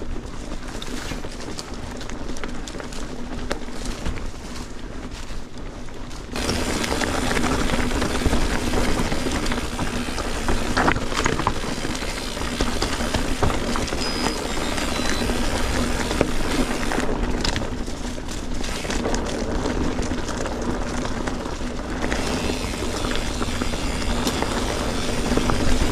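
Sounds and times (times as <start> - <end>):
tyre rumble and rattle: 0.0 - 25.9
bike knocking over rocks: 6.2 - 25.9
bike freewheel ratchet buzz: 6.4 - 17.1, 22.0 - 25.9.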